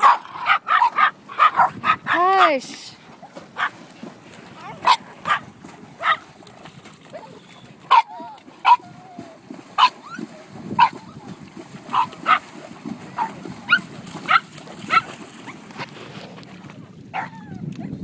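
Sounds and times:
dog barking in high yaps: 0.0s - 2.5s, 4.8s - 5.4s, 6.0s - 6.2s, 7.9s - 8.9s, 9.8s - 10.0s, 10.8s - 11.0s, 11.9s - 12.4s, 13.2s - 15.1s, 17.1s - 17.4s
pony splashing through water: 0.0s - 18.0s.

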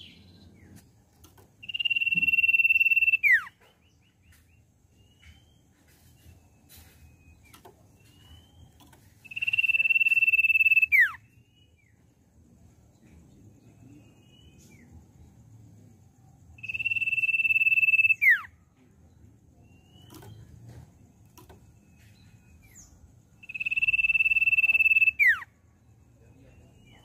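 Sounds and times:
soft bird chirps: 0.0s - 27.0s
bird whistling: 1.6s - 3.6s, 8.0s - 11.3s, 16.6s - 18.5s, 22.6s - 25.5s.

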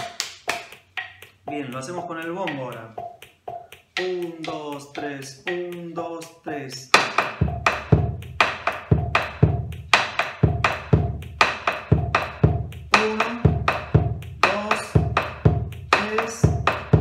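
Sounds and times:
drum booms: 0.0s - 17.0s
stick clicks on wooden rim: 15.9s - 16.8s.

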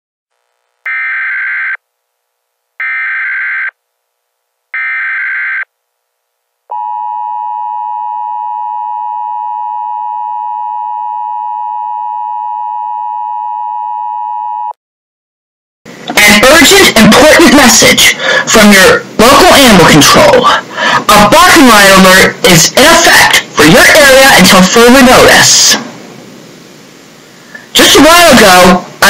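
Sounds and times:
two-tone attention signal: 6.7s - 14.7s.

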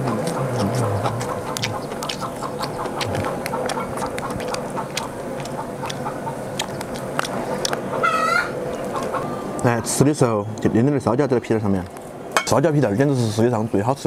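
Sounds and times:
person humming: 0.0s - 1.9s
person chewing food: 0.0s - 9.3s.

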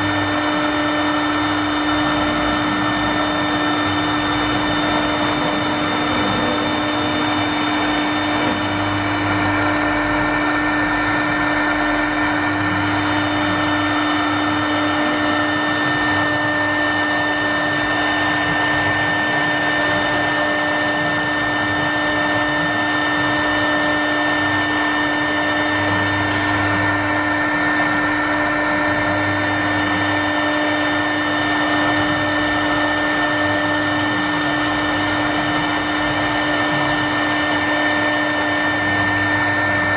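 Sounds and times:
router spindle whine: 0.0s - 39.9s.

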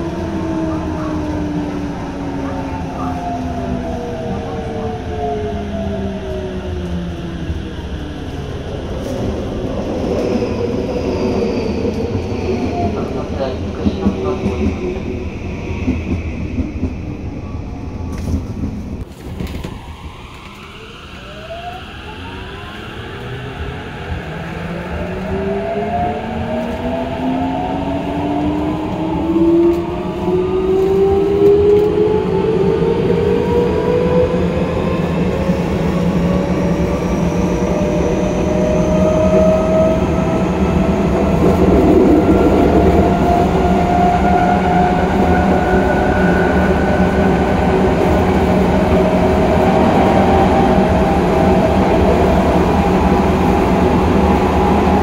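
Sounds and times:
wheels rumbling on rail: 0.0s - 55.0s.

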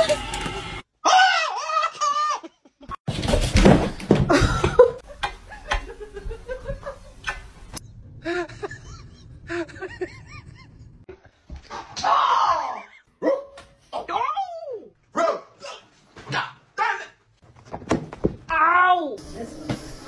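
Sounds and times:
people laughing: 4.3s - 7.2s, 8.3s - 11.1s.

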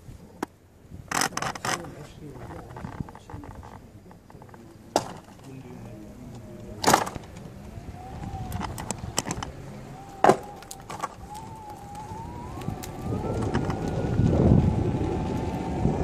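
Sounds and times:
tyre and wind noise: 0.0s - 16.0s
electric motor whining: 6.4s - 16.0s.

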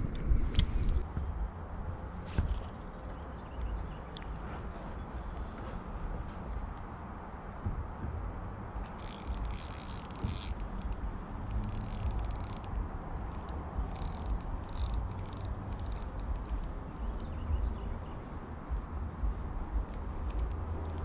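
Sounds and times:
steady low rumble: 0.0s - 21.0s
fishing reel whirring: 8.8s - 17.3s, 20.3s - 21.0s.

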